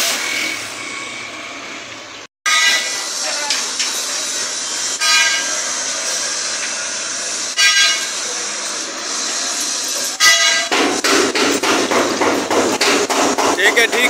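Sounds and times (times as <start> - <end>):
short horn beeps: 7.6 - 8.2, 10.2 - 10.7
hammer beating metal: 10.0 - 14.0.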